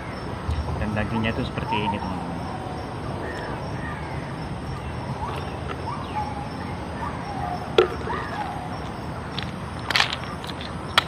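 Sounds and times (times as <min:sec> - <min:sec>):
birds chirping: 0:00.0 - 0:11.0
steady outdoor hiss: 0:00.0 - 0:11.0.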